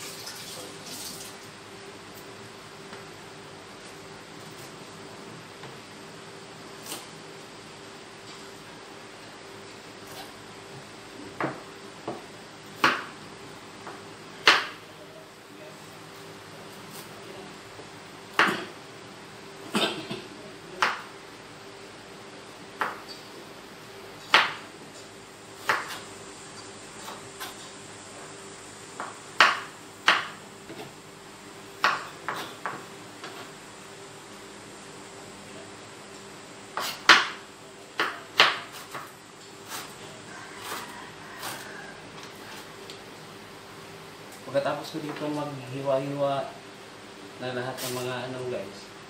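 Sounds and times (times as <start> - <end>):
knife chopping on plastic board: 14.4 - 14.8, 29.0 - 30.9, 31.8 - 33.4, 36.8 - 37.4, 38.0 - 39.1.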